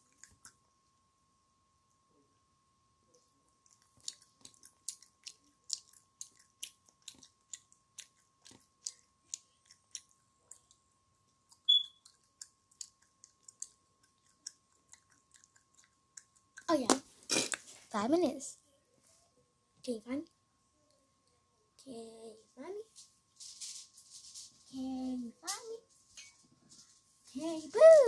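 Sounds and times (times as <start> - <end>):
child chewing gum smacking: 0.0 - 0.6, 3.6 - 17.7.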